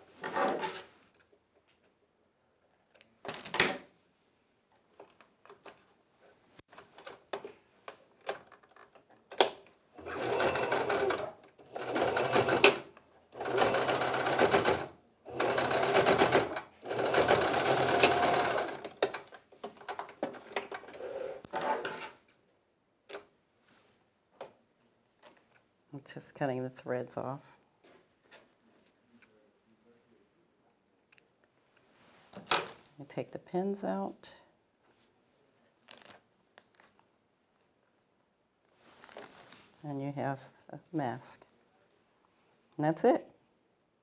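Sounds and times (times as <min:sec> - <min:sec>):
sewing machine stitching: 0:10.0 - 0:19.2.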